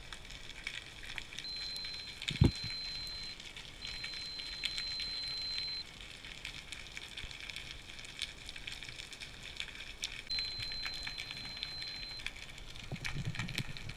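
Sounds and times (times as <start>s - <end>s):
watch alarm beeping underwater: 1.4s - 5.8s, 10.3s - 12.3s.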